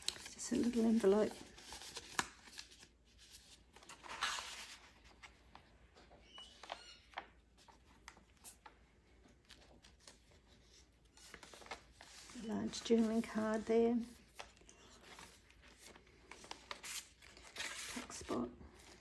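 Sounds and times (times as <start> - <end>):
journal pages turning: 0.0 - 19.0
paper rustling and sliding: 9.5 - 18.3.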